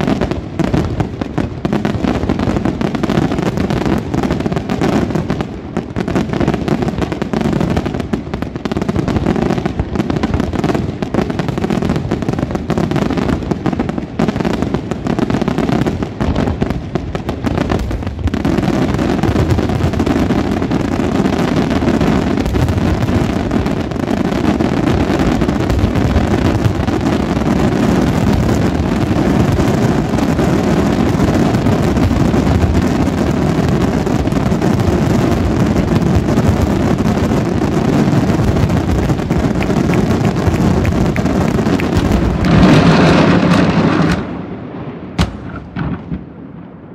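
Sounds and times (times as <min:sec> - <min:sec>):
firework shells bursting: 0:38.3 - 0:44.4, 0:45.1 - 0:46.4.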